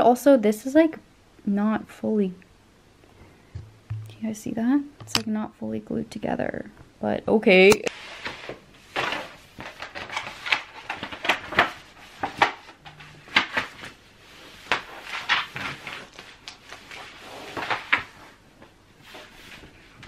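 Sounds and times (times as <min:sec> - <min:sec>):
taps and knocks on frame: 0:03.5 - 0:04.2, 0:05.0 - 0:05.3
paper poster rustling: 0:08.0 - 0:18.4.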